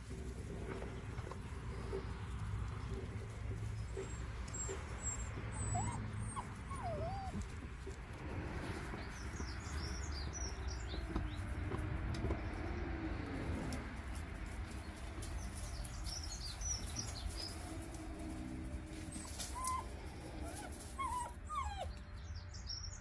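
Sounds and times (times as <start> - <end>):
puppy whimpering: 3.8 - 7.6, 19.1 - 22.0.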